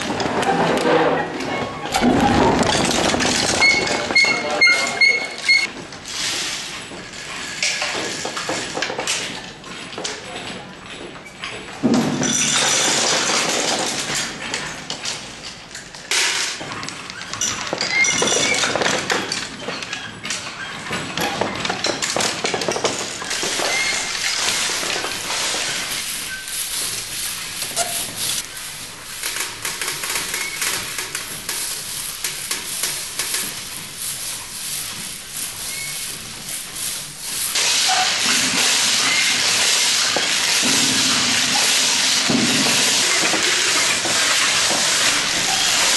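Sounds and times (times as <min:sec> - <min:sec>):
pellets pattering on latex sheet: 0:22.5 - 0:45.9
steady hiss: 0:23.3 - 0:45.9.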